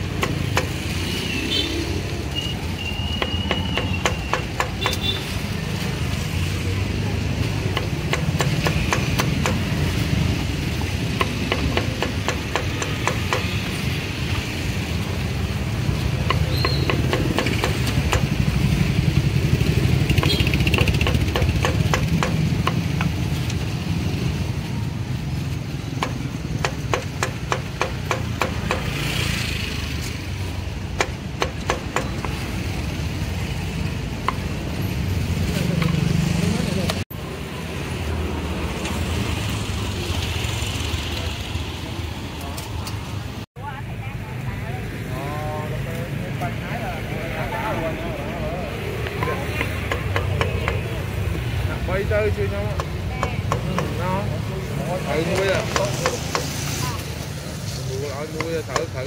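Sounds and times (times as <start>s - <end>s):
low rumble of traffic: 0.0s - 59.0s
cleaver chopping on wooden block: 3.2s - 5.0s, 7.6s - 9.8s, 11.0s - 13.7s, 16.2s - 18.4s, 20.1s - 23.2s, 26.0s - 29.0s, 30.9s - 32.4s, 55.2s - 56.6s.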